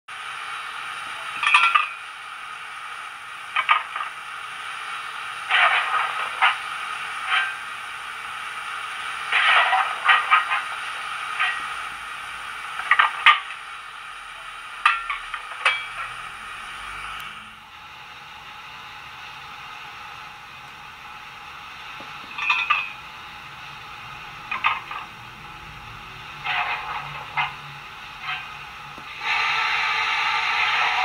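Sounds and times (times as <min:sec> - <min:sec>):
steam hiss from small speakers: 0:00.1 - 0:18.2, 0:25.8 - 0:31.0
short metallic clanks and scrapes: 0:01.4 - 0:02.0, 0:05.5 - 0:06.6, 0:07.2 - 0:07.7, 0:09.3 - 0:10.8, 0:11.4 - 0:11.8, 0:12.8 - 0:13.6, 0:22.3 - 0:23.0, 0:24.5 - 0:25.1, 0:26.4 - 0:28.5.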